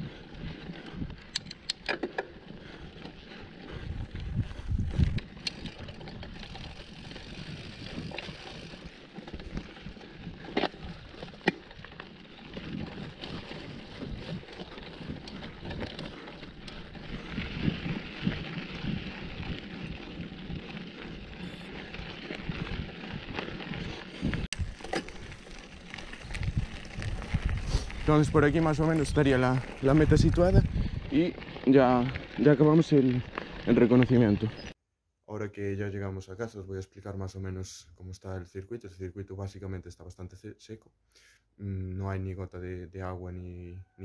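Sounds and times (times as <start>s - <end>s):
bike knocks and rattles: 1.3s - 2.4s, 5.0s - 21.0s
wind on microphone: 3.6s - 11.2s, 12.5s - 24.8s, 26.1s - 31.3s
tyres rumbling on dirt: 5.0s - 34.7s.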